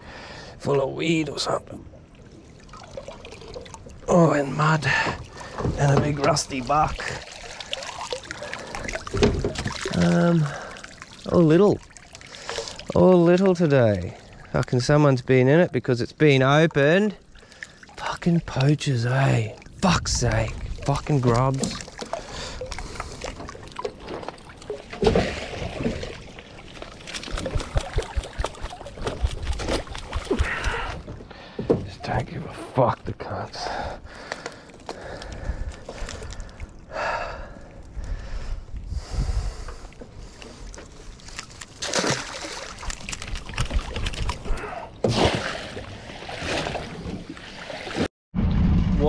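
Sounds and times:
water splashing: 0:01.8 - 0:15.1, 0:16.8 - 0:31.5, 0:40.2 - 0:48.1
water splashing off mesh: 0:05.8 - 0:13.0, 0:23.8 - 0:30.9, 0:41.8 - 0:44.4
crab pot netting rattling: 0:27.0 - 0:30.8.

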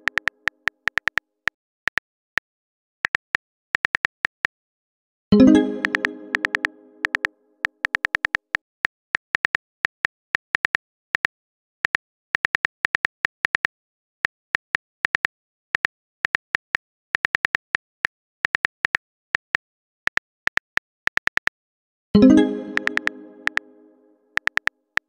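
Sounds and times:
phone keyboard key clicks: 0:00.0 - 0:00.3.

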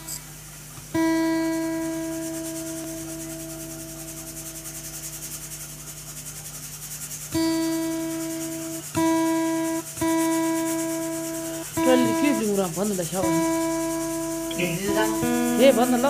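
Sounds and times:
acoustic guitar plucked: 0:00.0 - 0:05.6, 0:07.3 - 0:16.0
person humming a melody: 0:11.8 - 0:12.6, 0:13.2 - 0:16.0.

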